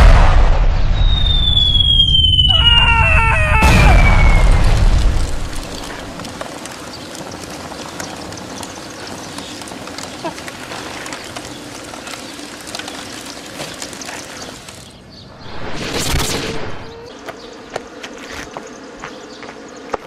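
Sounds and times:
fire crackling and popping: 0:01.2 - 0:16.9.

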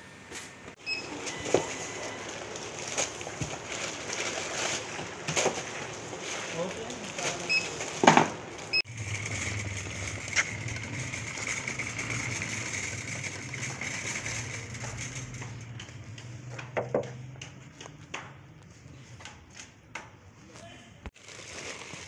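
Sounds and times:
barcode scanner beeps: 0:00.8 - 0:02.4
groceries clattering: 0:00.9 - 0:17.2, 0:21.2 - 0:22.0
trolley wheels rolling over paving: 0:01.1 - 0:16.8.

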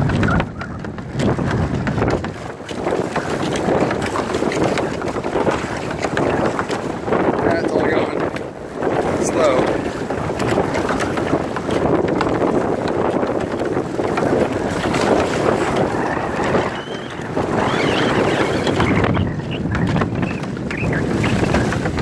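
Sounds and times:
waves slapping against boat: 0:00.0 - 0:22.0
wind buffeting microphone: 0:00.0 - 0:22.0.

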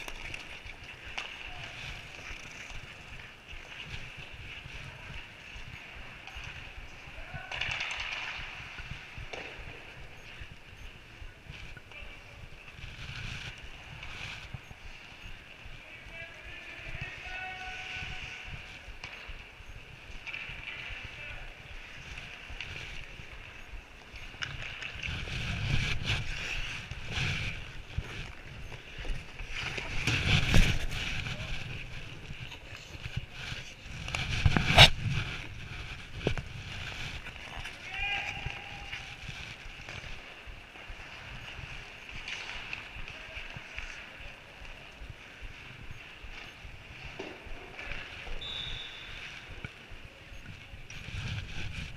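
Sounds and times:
skate blades scraping ice: 0:16.2 - 0:51.9
camera handling noise: 0:34.0 - 0:35.3.

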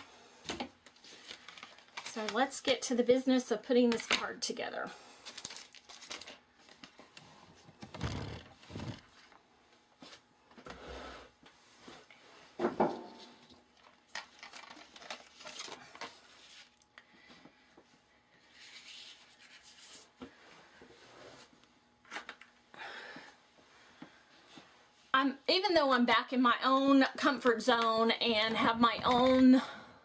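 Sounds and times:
paper rustling and rubbing: 0:18.5 - 0:20.2.

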